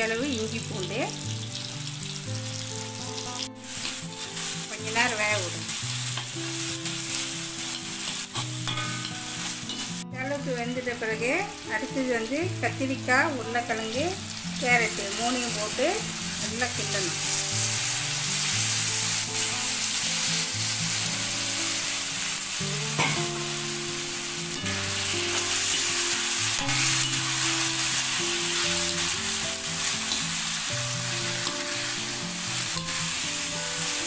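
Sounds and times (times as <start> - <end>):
vegetables sizzling in hot oil: 0.0 - 34.0
steel ladle scraping pan: 7.8 - 10.0.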